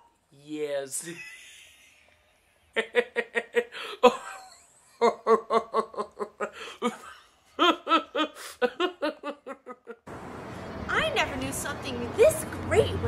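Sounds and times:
person laughing: 2.8s - 10.0s.

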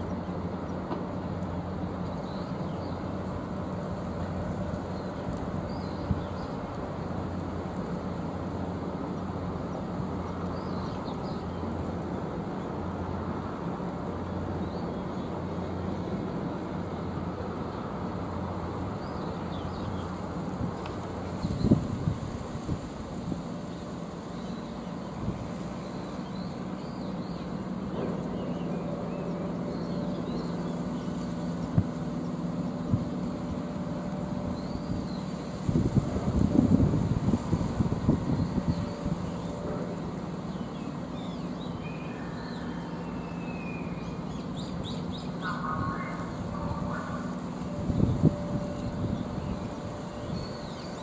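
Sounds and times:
ship engine drone: 0.0s - 51.0s
wind noise: 20.5s - 23.5s, 34.8s - 39.8s, 45.7s - 50.6s.

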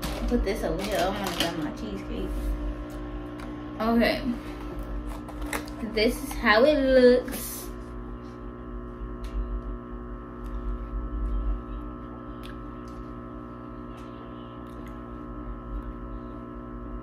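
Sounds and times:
ambient drone of held tones: 10.9s - 17.0s.

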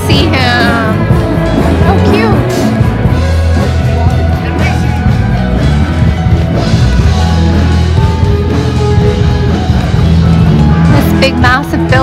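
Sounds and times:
live rock band: 0.0s - 12.0s.

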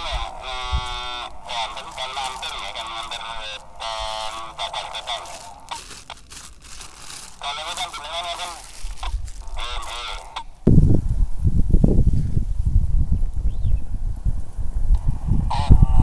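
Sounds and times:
voices over radio speaker: 0.0s - 6.2s, 7.3s - 10.6s, 15.4s - 16.0s
plastic bag rustling: 0.0s - 10.6s.

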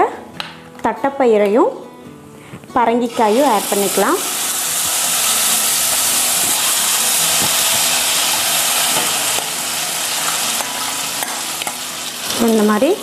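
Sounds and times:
hot ghee sizzling: 3.1s - 13.0s.

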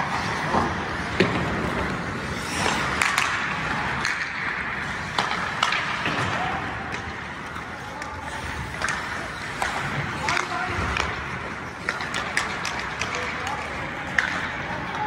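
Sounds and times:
hockey sticks and puck clacking: 0.0s - 15.0s
skates scraping on ice: 0.0s - 15.0s.

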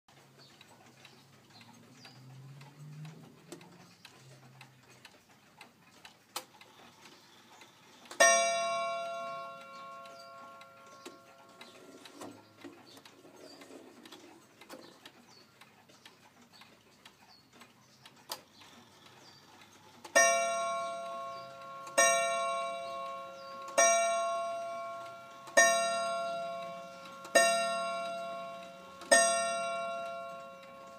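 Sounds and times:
clock ticking faintly: 0.1s - 30.9s
wall clock striking: 8.2s - 12.8s, 20.1s - 30.9s.

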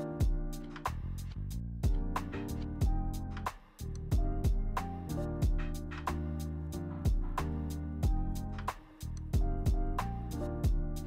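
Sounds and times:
regular drum beat: 0.0s - 1.2s, 1.8s - 11.0s.

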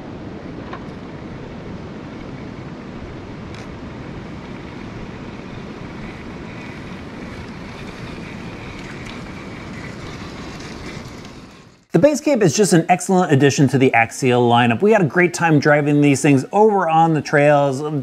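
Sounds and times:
faint electric motor whine: 0.0s - 11.9s
wind buffeting microphone: 0.0s - 11.9s.

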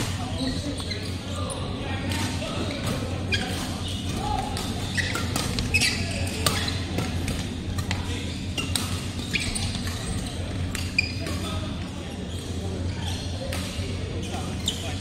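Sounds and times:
shoes squeaking on floor: 0.0s - 1.8s, 2.6s - 7.0s, 8.2s - 13.6s.

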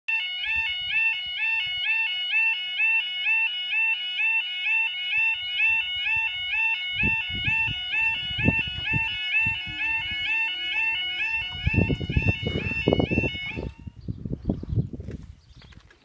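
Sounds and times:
level crossing two-tone alarm: 0.1s - 13.9s
low thumps: 7.0s - 13.8s.

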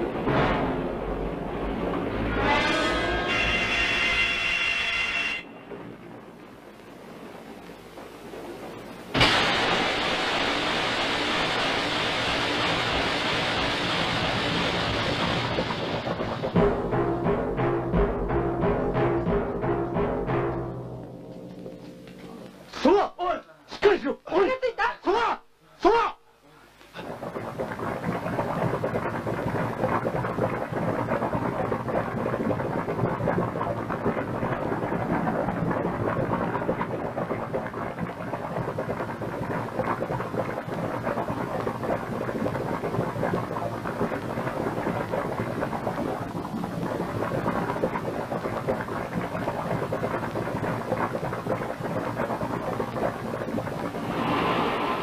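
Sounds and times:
rumbling rushing noise: 53.8s - 55.0s.

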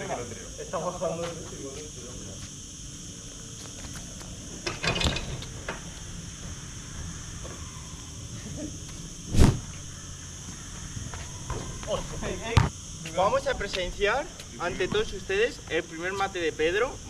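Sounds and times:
steady high hiss: 0.0s - 17.0s
loud short thud: 9.3s - 9.8s
footsteps thumping on hard court: 11.0s - 13.2s.

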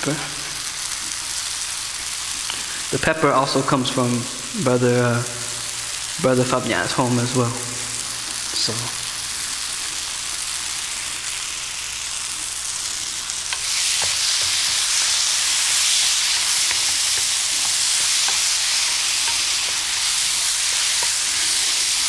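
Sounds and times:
food sizzling in a frying pan: 0.0s - 22.0s
spatula scraping a pan: 13.5s - 22.0s.

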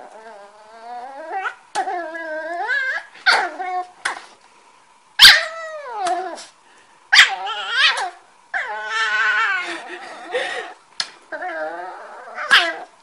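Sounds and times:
dog yowling: 0.0s - 3.9s, 5.2s - 6.5s, 7.1s - 10.0s, 11.3s - 12.9s.

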